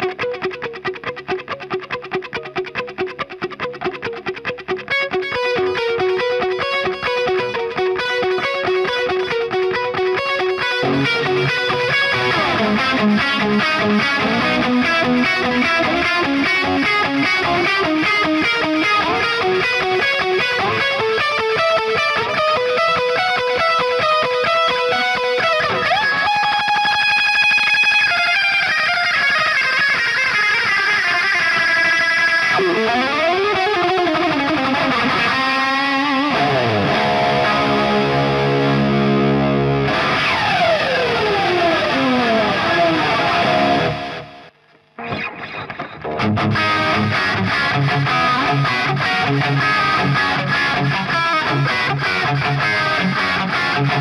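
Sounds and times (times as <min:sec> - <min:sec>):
distorted electric guitar: 0:00.0 - 0:54.0.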